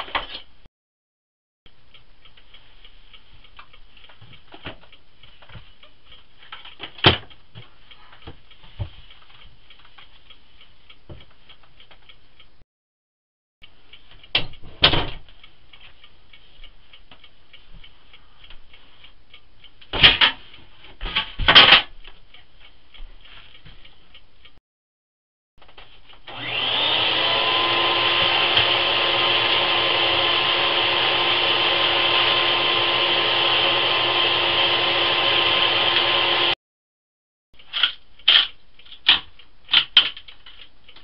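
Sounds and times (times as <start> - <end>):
faint high ticking hiss: 1.7 - 6.6.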